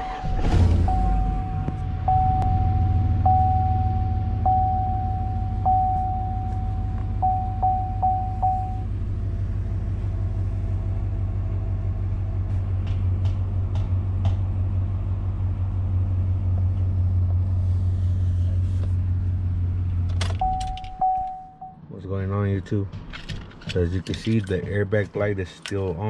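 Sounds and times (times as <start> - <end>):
pickup engine idling: 0.0 - 21.7
dashboard warning chime: 0.8 - 8.9, 20.3 - 21.8.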